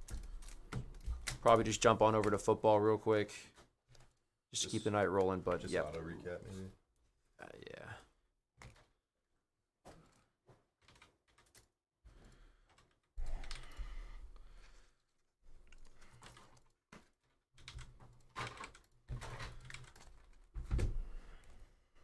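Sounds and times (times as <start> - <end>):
typing on a keyboard: 17.6 - 20.4.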